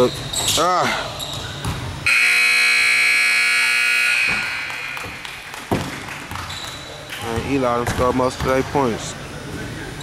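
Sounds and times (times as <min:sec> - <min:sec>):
scoreboard horn blast: 0:02.1 - 0:05.0.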